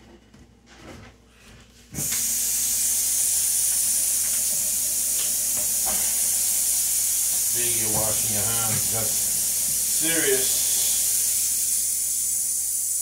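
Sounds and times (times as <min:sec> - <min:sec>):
tap water running: 0:02.0 - 0:13.0.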